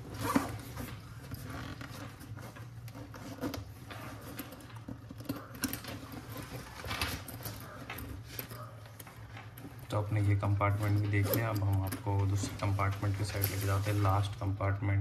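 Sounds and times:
zipper being drawn: 0.0 - 4.5
nylon fabric rustling: 0.0 - 4.9.

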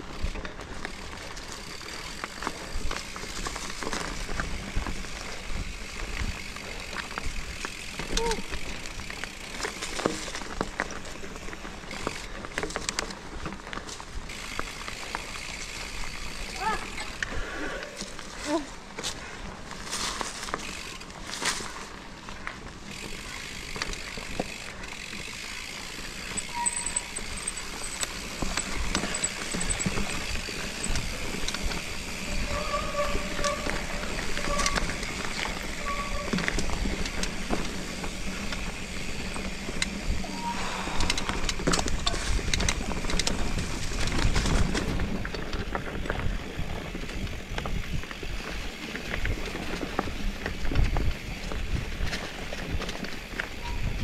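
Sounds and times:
mountain bike tyre and drivetrain noise: 0.0 - 54.0
short squeaks: 26.3 - 28.2, 32.2 - 36.8, 40.2 - 41.6, 53.5 - 54.0.

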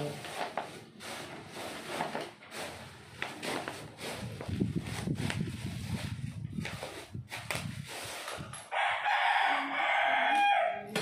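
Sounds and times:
rooster crowing: 8.7 - 11.0.

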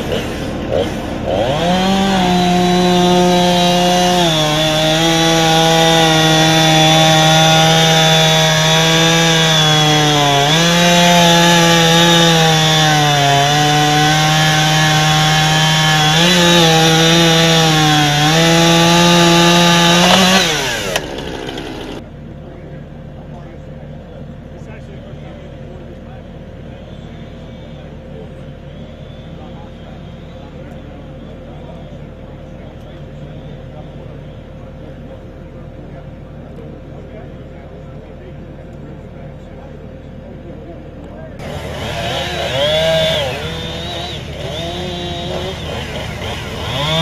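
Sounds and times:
chainsaw cutting: 0.0 - 22.0, 41.4 - 47.0.

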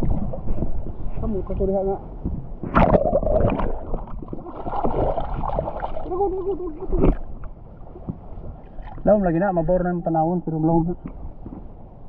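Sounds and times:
underwater gurgling and sloshing: 0.0 - 12.0
sea water splashing: 2.6 - 9.3.

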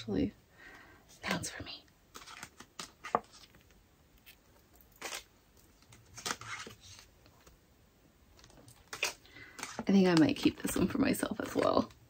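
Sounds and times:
paper cards rustling and scraping: 2.1 - 7.6, 8.4 - 11.9.

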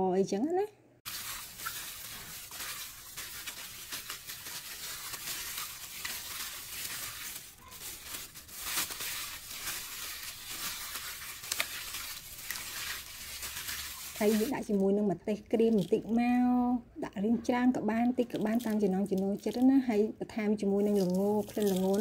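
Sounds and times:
plastic bag crinkling: 1.1 - 14.8, 15.6 - 16.1, 20.8 - 22.0.

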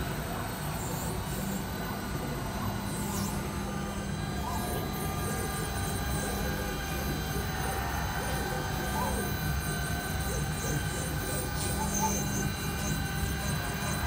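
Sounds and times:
router spindles whining: 0.0 - 14.0.

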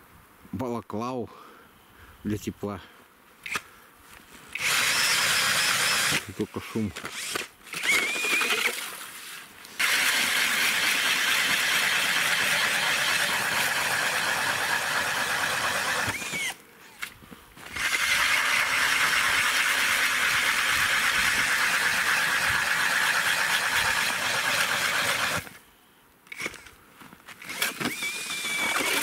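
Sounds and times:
drill auger grinding ice: 4.5 - 6.4, 7.0 - 9.1, 9.8 - 25.6, 27.4 - 29.0.

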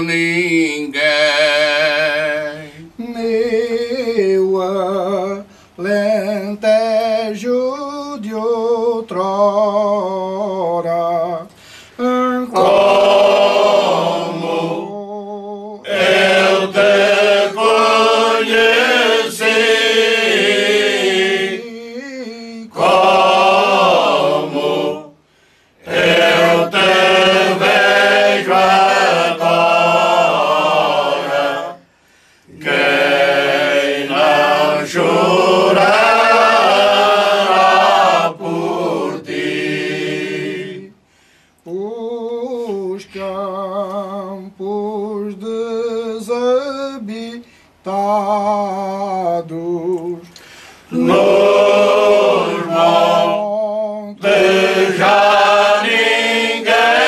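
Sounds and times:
male choir singing: 0.0 - 8.4, 12.0 - 25.2, 25.8 - 31.9, 32.5 - 41.0, 50.9 - 57.0.

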